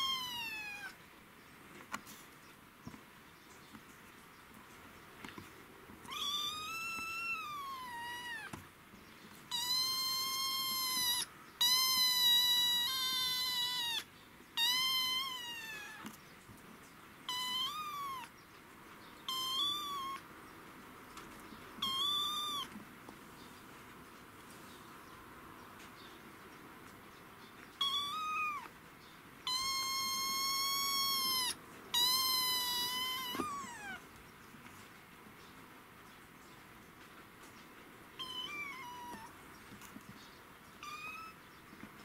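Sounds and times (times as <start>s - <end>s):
kitten meowing: 0.0s - 1.0s, 6.0s - 8.6s, 9.5s - 16.2s, 17.3s - 18.3s, 19.2s - 20.3s, 21.8s - 22.8s, 27.8s - 28.7s, 29.4s - 34.0s, 38.2s - 39.4s, 40.8s - 41.4s.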